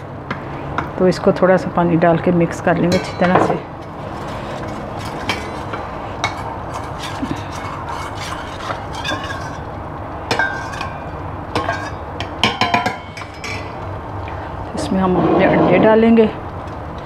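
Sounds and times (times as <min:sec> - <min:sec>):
spoon clinking and scraping bowl: 0:02.9 - 0:09.7, 0:10.3 - 0:13.8.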